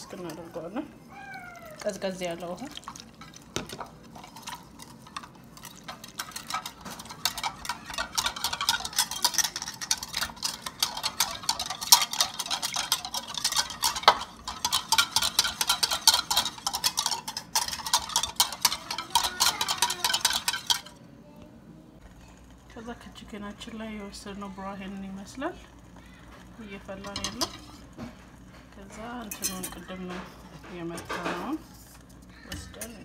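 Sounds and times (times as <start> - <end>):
whisk clicking against bowl: 1.8 - 20.9.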